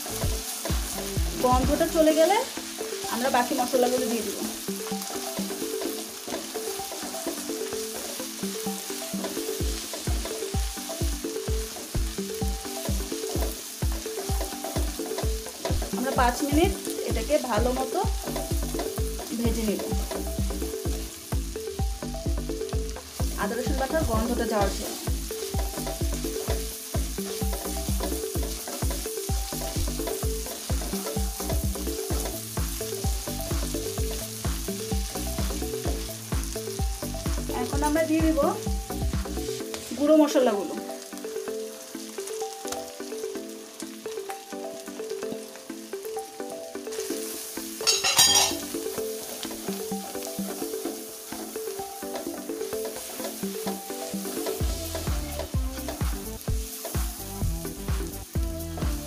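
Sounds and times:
spatula stirring in a pan: 0.0 - 21.6, 22.6 - 38.0, 38.6 - 40.0, 46.9 - 58.2
background music with steady beat: 0.0 - 59.0
paste sizzling in hot oil: 0.0 - 59.0
bass drum: 0.2 - 2.0, 14.4 - 39.5, 54.6 - 59.0.

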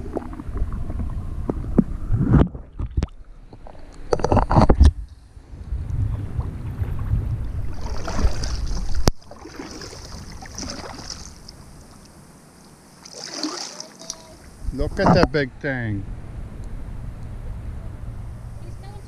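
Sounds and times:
wind rumbling on microphone: 0.0 - 12.1, 14.4 - 19.0
paddle splashing in water: 6.3 - 12.0, 13.0 - 14.6.

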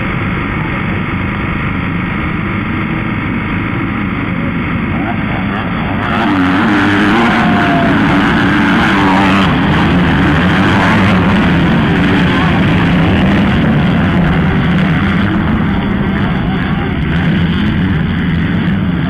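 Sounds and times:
motocross bikes revving: 0.0 - 19.0.

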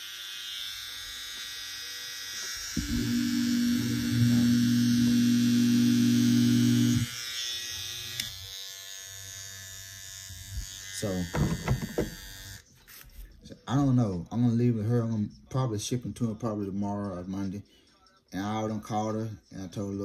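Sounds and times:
hair trimmers whining: 0.0 - 12.6
low motor hum: 2.8 - 7.1.

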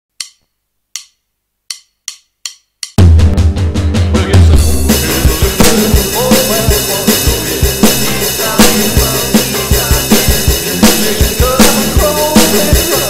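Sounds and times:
rock drum kit groove: 2.9 - 13.0
backing track with melody: 3.0 - 13.0.

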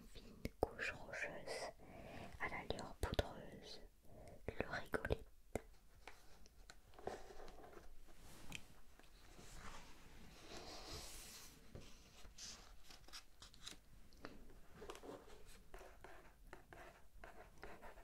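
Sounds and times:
book page turning: 12.2 - 13.8.

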